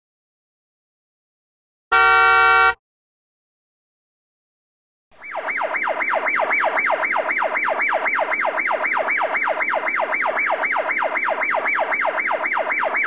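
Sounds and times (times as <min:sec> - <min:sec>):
siren yelping: 0:05.2 - 0:13.0.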